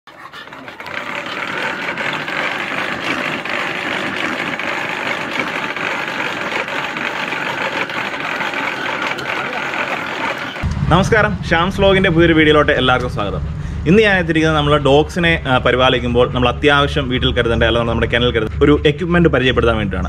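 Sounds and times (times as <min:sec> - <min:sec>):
treadmill slats clicking: 0:00.1 - 0:10.6.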